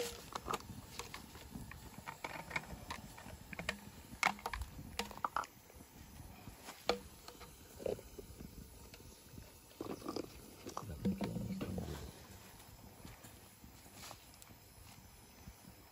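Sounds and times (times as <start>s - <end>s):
campfire crackling: 0.0s - 15.9s.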